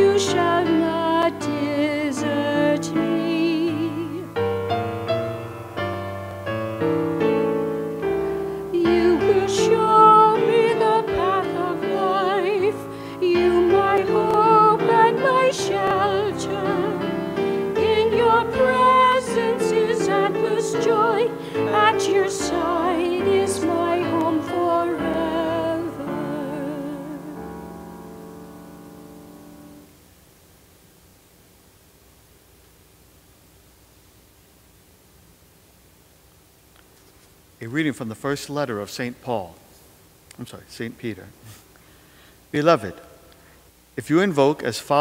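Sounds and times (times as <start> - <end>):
woman singing with vibrato: 0.0 - 4.4, 8.6 - 27.7
piano accompaniment: 0.0 - 29.9.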